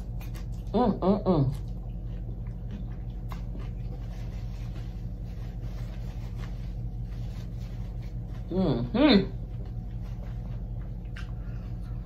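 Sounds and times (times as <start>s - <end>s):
person chewing crispy food: 0.0s - 8.4s
steady low hum: 0.0s - 12.0s.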